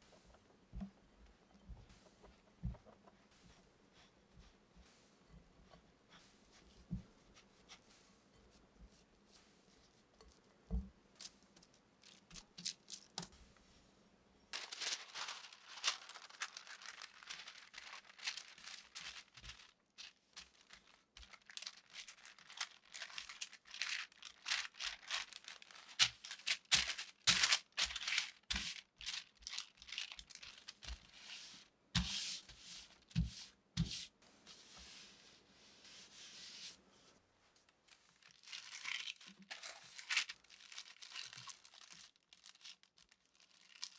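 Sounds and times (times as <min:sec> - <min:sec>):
baking paper crinkling: 0:11.2 - 0:13.7, 0:14.5 - 0:35.2, 0:37.6 - 0:43.9
rolling pin on dough: 0:31.2 - 0:36.8.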